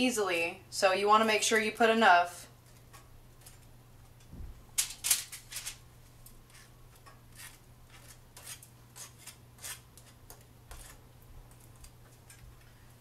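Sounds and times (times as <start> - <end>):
spatula scraping on bun: 6.4 - 11.1.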